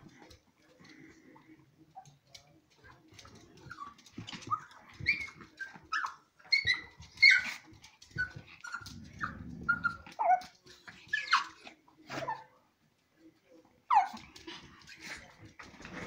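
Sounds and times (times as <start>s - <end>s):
dog growling: 8.7s - 10.5s.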